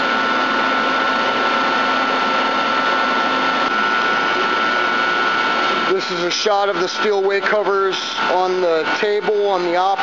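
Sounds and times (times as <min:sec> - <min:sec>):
boring mill machine whirring: 0:00.0 - 0:10.0.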